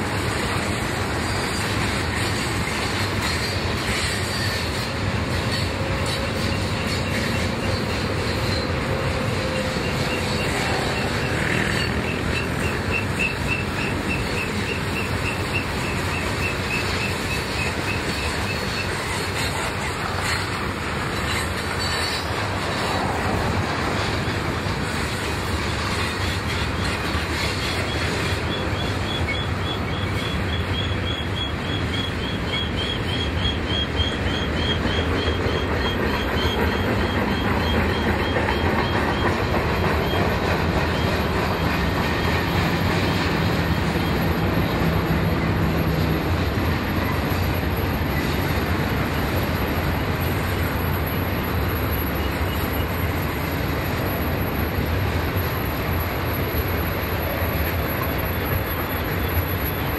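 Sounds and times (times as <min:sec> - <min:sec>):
train rumbling on rails: 0:00.0 - 0:59.9.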